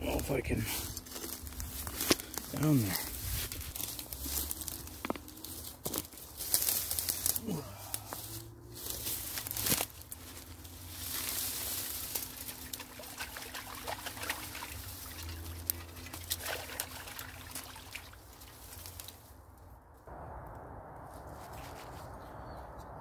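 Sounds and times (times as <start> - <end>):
dry reeds crunching and rustling: 0.0 - 20.1, 21.1 - 22.5
water trickling and splashing: 9.0 - 19.2.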